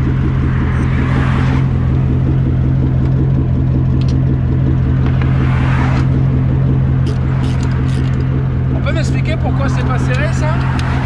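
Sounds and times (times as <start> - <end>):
vehicle engine idling: 0.0 - 11.0
metallic clicks of sockets: 7.0 - 8.3.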